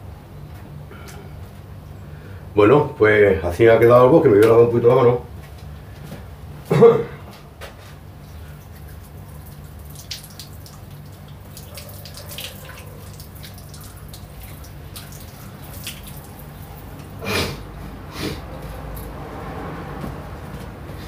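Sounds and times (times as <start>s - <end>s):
steady low hum: 0.0s - 11.8s
water dripping: 8.2s - 17.2s.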